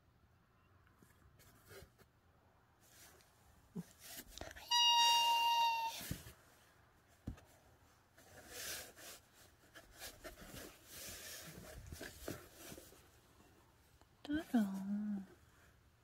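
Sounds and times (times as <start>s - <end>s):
cardboard rustling and scratching: 5.9s - 13.3s.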